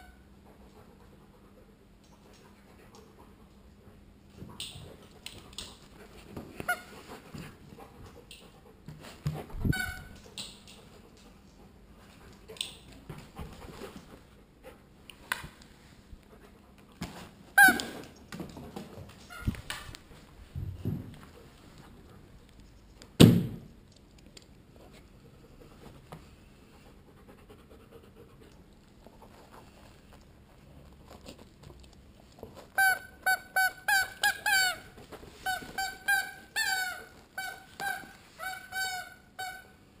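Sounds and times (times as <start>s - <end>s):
squeaky toy squeaks: 9.6s - 10.2s, 17.6s - 17.9s, 32.7s - 39.8s
thump: 23.2s - 23.7s.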